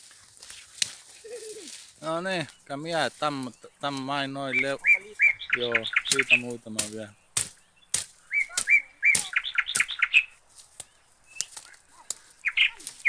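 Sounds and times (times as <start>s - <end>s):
dry twigs snapping: 0.0s - 2.0s, 5.8s - 13.0s
small bird chirping: 1.2s - 13.0s.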